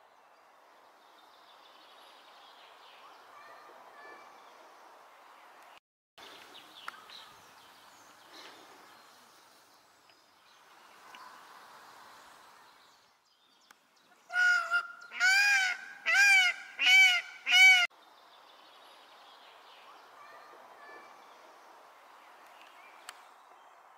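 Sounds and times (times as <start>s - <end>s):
faint outdoor background noise: 0.0s - 23.9s
peacock calling: 14.2s - 17.9s.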